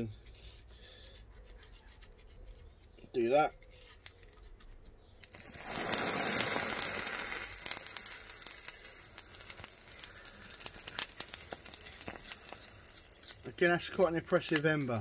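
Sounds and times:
wooden dowel scraping: 0.0s - 7.8s
fire crackling and popping: 2.9s - 15.0s
loud fizzing hiss: 5.5s - 11.2s.

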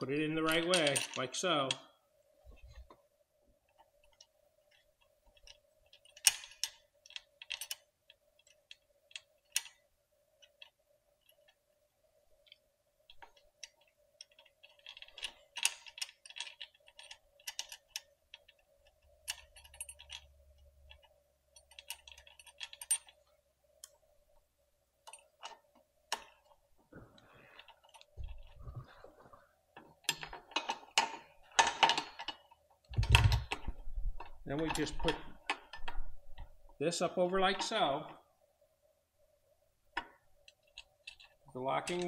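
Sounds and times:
faint steady hum: 0.0s - 42.0s
metallic clicks of small hardware: 12.4s - 23.2s.

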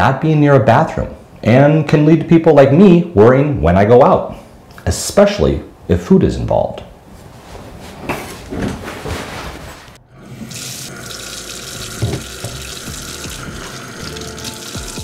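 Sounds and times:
tap water running into sink: 10.3s - 15.0s.

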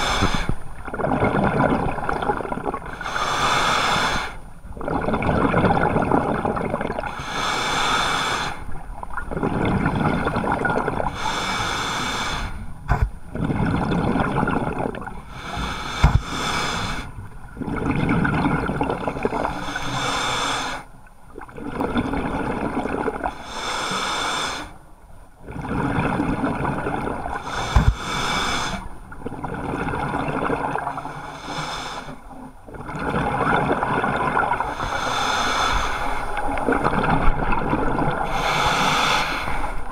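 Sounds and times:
diver exhaling bubbles underwater: 0.0s - 3.0s, 4.8s - 7.2s, 9.3s - 11.1s, 12.9s - 15.2s, 17.6s - 19.7s, 25.4s - 31.2s, 32.7s - 35.7s.

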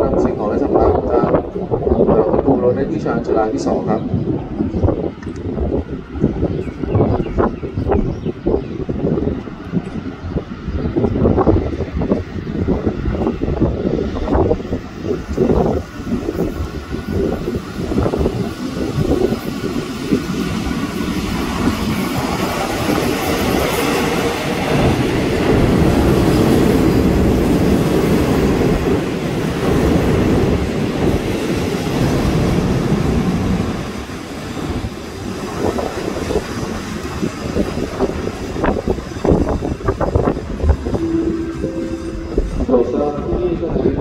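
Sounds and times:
train wheels clickety-clack: 19.2s - 40.2s.

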